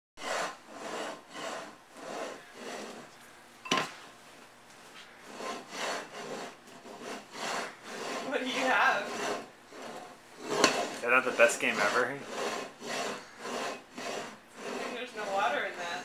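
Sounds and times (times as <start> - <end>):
metal bowl scraping on tile: 0.2 - 4.0, 5.1 - 16.0.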